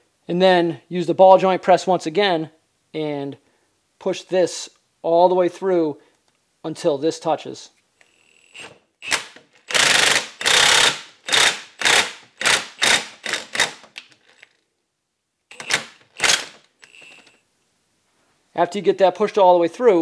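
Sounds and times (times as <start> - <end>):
impact wrench bursts: 8.0 - 14.4, 15.5 - 17.4.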